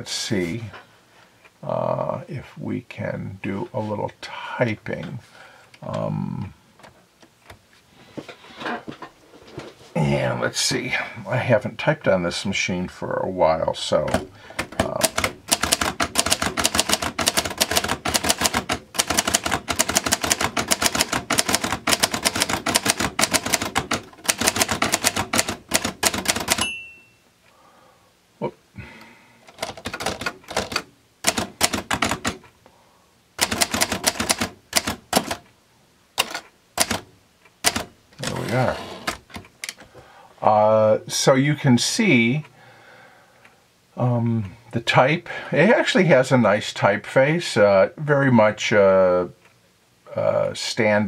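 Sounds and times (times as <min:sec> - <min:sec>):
typewriter keystrokes clacking: 0:14.1 - 0:26.7, 0:29.5 - 0:32.4, 0:33.4 - 0:35.4, 0:36.2 - 0:37.9.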